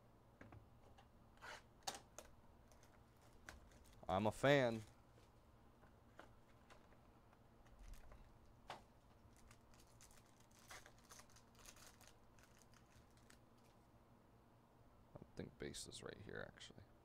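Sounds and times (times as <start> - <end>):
foil wrapper crinkling and tearing: 2.7 - 4.1, 9.1 - 13.8.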